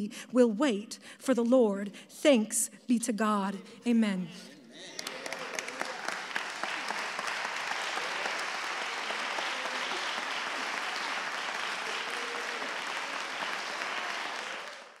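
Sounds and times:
crowd applauding: 0:04.9 - 0:15.0.

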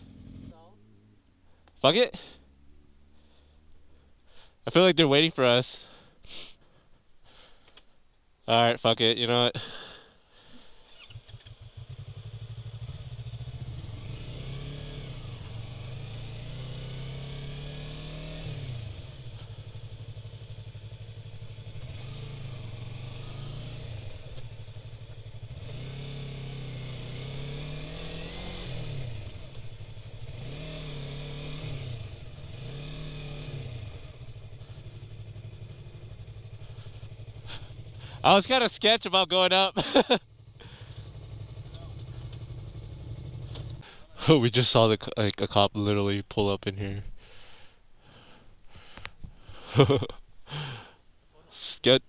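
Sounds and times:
motorcycle engine revving: 0:00.0 - 0:00.8, 0:10.8 - 0:38.6, 0:39.8 - 0:44.4, 0:49.5 - 0:50.9.

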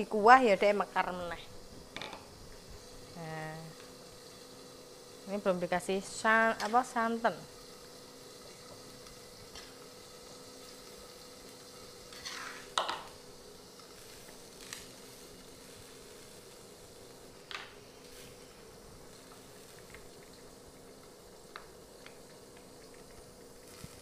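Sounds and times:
soup simmering: 0:07.5 - 0:24.0
stirring clicks and pan scrapes: 0:12.1 - 0:12.7.

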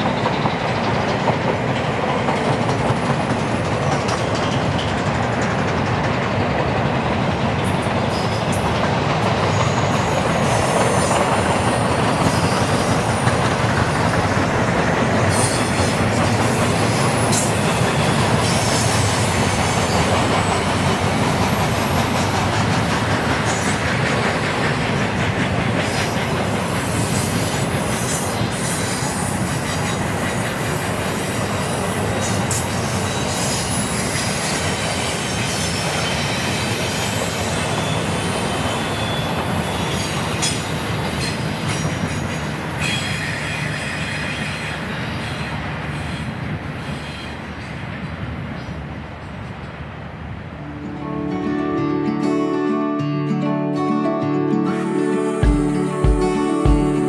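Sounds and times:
train wheels rumbling on rails: 0:00.0 - 0:51.1
high wheel squeals: 0:09.4 - 0:24.1, 0:25.2 - 0:47.8.

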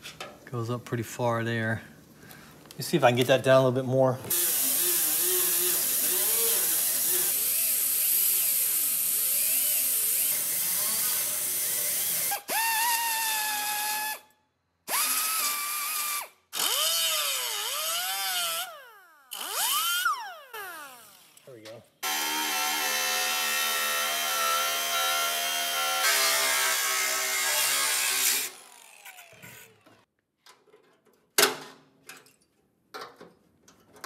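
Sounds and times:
die grinder grinding metal: 0:04.3 - 0:14.1, 0:14.9 - 0:30.0.

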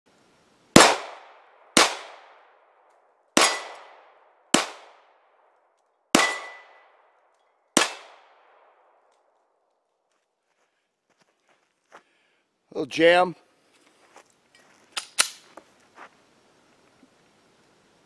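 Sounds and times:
pistol shots echoing: 0:00.8 - 0:02.5, 0:03.4 - 0:05.2, 0:06.1 - 0:07.0, 0:07.8 - 0:08.9.

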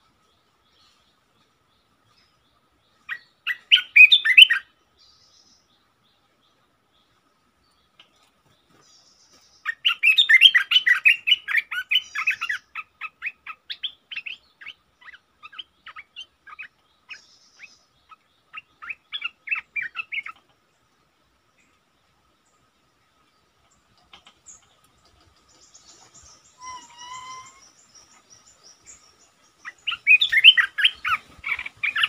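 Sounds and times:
bird chattering calls: 0:25.6 - 0:32.0.

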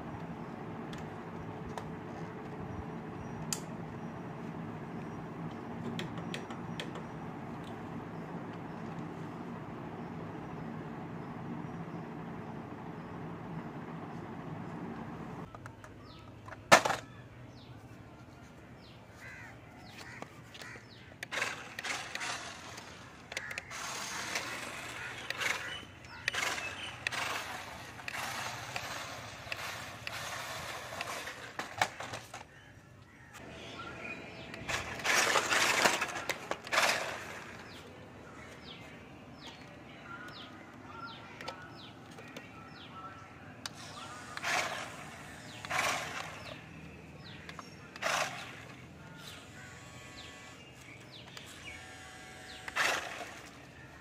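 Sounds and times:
toy truck motor and tyres: 0:00.0 - 0:32.7, 0:33.4 - 0:54.0.

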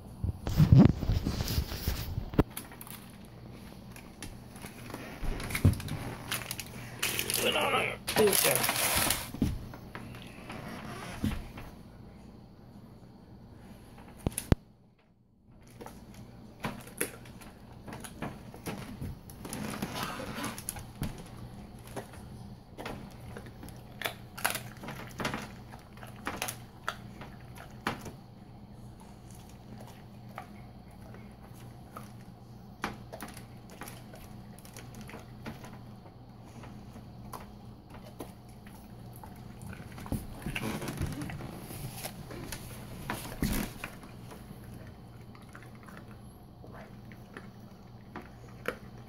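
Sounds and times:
dog chewing bones: 0:20.6 - 0:28.2, 0:36.6 - 0:49.0.

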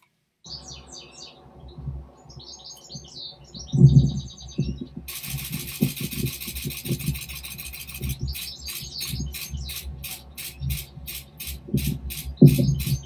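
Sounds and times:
low thumps and rumbles: 0:03.6 - 0:05.1, 0:11.6 - 0:13.0
camera shutter burst: 0:05.1 - 0:13.0.

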